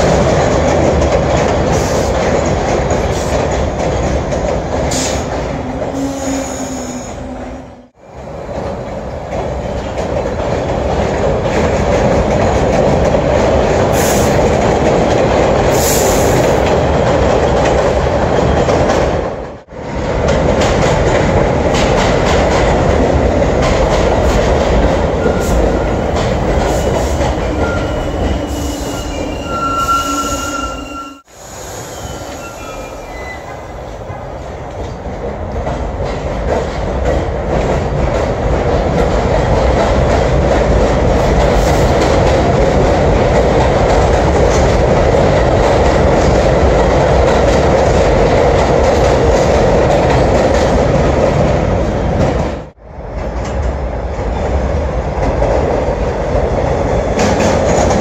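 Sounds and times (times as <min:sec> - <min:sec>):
train wheels rumbling and clacking: 0:00.0 - 0:58.0
wheels squealing: 0:25.1 - 0:33.8.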